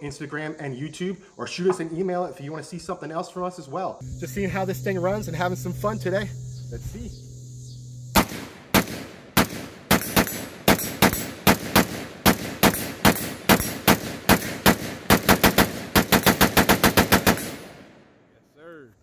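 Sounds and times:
rifle gunshots: 8.2 - 18.0.

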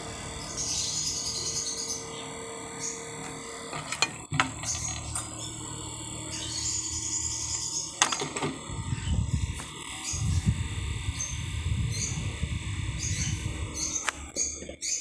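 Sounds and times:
desk fan humming: 0.0 - 15.0
fan being handled clicks: 8.0 - 8.6.

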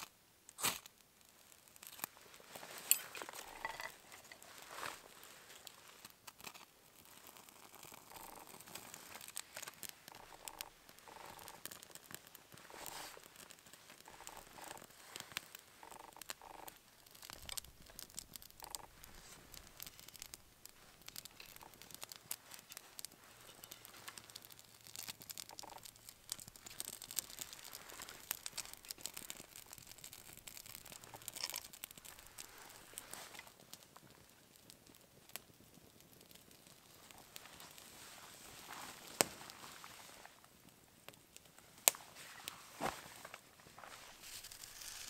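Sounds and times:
campfire crackling and popping: 0.0 - 45.0
sticks rustling and clicking: 1.8 - 33.6.

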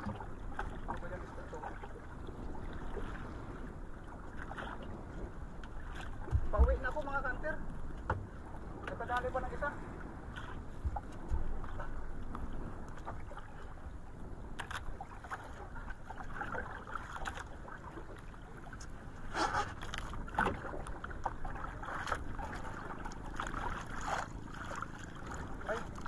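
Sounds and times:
rush of sea water: 0.0 - 26.0
wind: 0.0 - 26.0
sharp knocks on boat: 6.0 - 7.1, 7.9 - 9.2, 10.8 - 11.8, 19.4 - 20.8.

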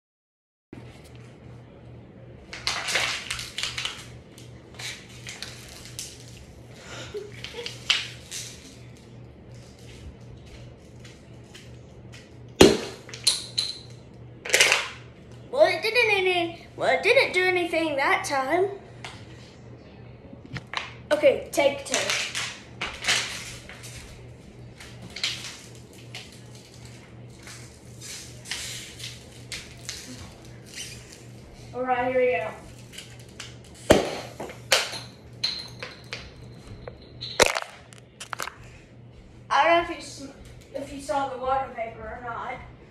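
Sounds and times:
ceiling fan hum: 0.8 - 42.9
plastic bottle crinkling: 37.4 - 38.6.

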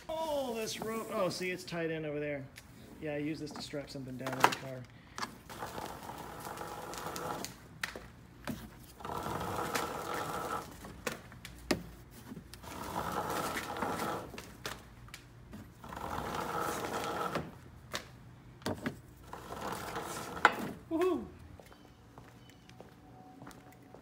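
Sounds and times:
cord pulled rubbing and buzzing: 4.2 - 11.6, 12.2 - 18.1, 18.8 - 20.9.

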